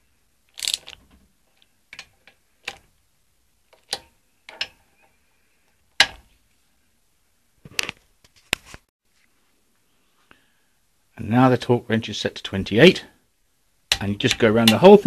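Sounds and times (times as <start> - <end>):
torque wrench clicking: 0.6 - 1.0.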